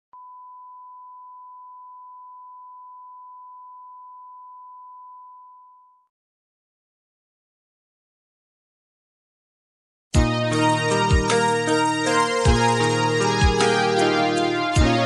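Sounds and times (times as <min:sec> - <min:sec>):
sine wave test tone: 0:00.2 - 0:06.1.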